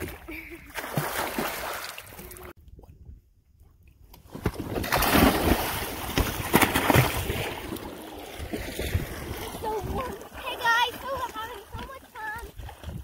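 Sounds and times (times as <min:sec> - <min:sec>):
swimmers splashing water: 0:04.9 - 0:13.0.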